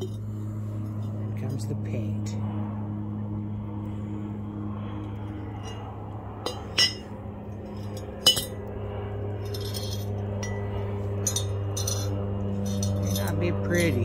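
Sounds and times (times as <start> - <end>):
steady low hum: 0.0 - 14.0
metal brackets clinking: 9.5 - 10.6, 11.2 - 14.0.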